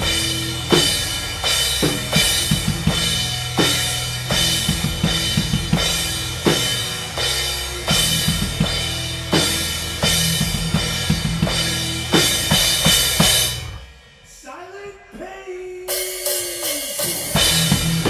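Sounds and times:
electric guitar and bass: 0.0 - 13.9, 17.3 - 18.0
live band playing: 0.0 - 14.0.

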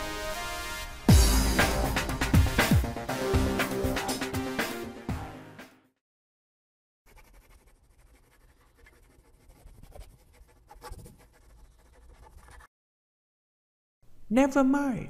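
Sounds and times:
marker scratching on whiteboard: 7.1 - 12.7.

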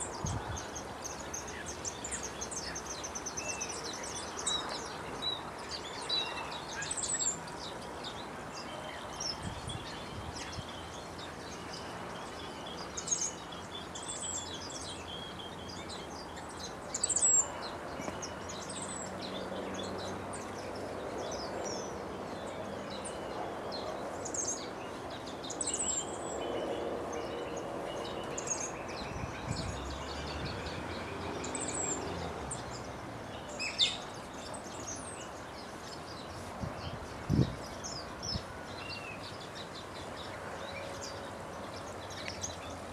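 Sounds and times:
outdoor background noise: 0.0 - 42.9.

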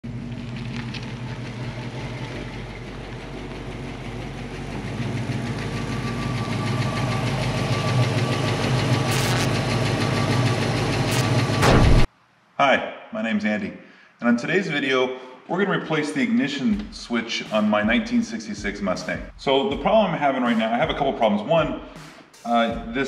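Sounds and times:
car engine driving slowly: 0.0 - 11.6.

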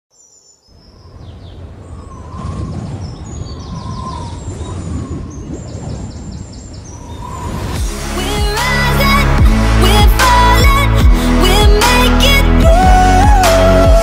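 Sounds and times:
birds chirping: 0.1 - 9.2
low rushing noise: 1.0 - 11.8.

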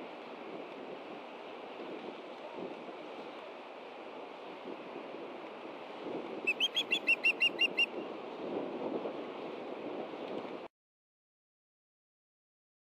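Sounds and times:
wind and rain hiss: 0.0 - 10.7
osprey whistled chirps: 6.5 - 7.9.

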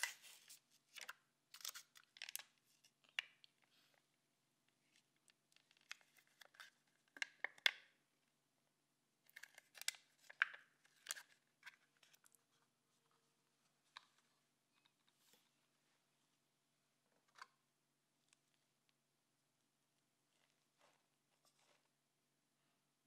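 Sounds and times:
plastic cup crinkling: 0.0 - 3.7, 4.9 - 7.7, 9.3 - 12.6.

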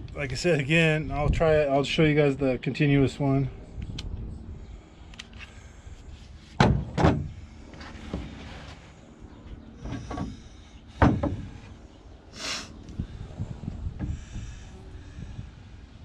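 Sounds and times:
wooden thuds: 6.6 - 7.4, 11.0 - 11.7.

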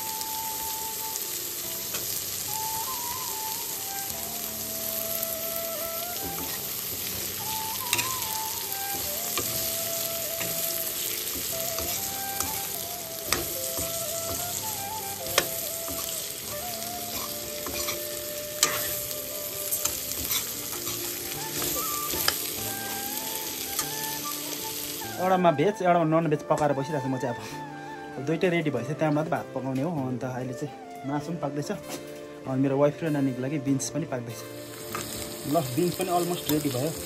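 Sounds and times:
green beans sizzling in a wok: 0.0 - 25.5, 33.8 - 37.0
metal spatula scraping a pan: 17.1 - 19.1, 19.7 - 22.6.

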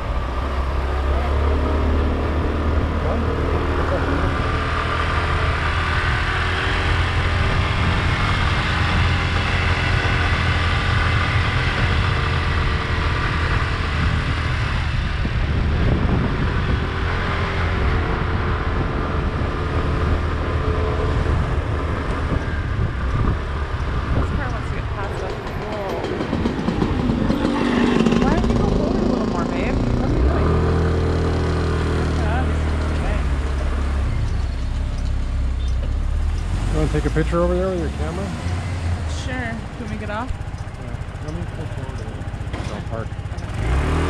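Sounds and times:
wind rumble on microphone: 0.0 - 35.1
motor scooter engine running: 22.2 - 36.0, 39.0 - 44.0.

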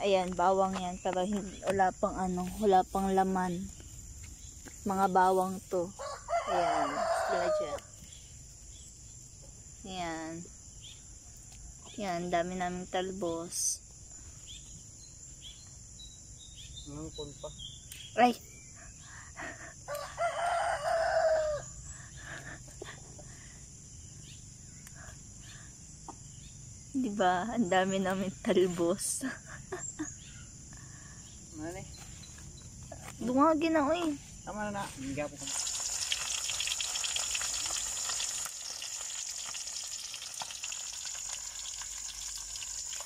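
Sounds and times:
insects chirring: 0.0 - 43.0
rooster crowing: 5.9 - 7.9, 19.9 - 21.9
leaves rustling: 31.9 - 43.0
fish frying in hot oil: 35.4 - 43.0.

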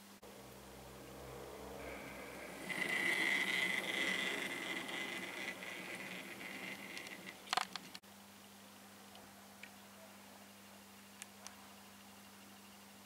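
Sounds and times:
model train whine and rattle: 1.2 - 8.0
sharp clicks: 6.4 - 8.0.

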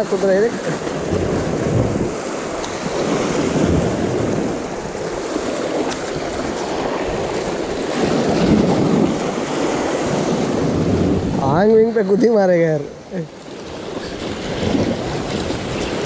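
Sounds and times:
surf breaking against rocks: 0.0 - 16.0
wind buffeting microphone: 0.0 - 16.0.

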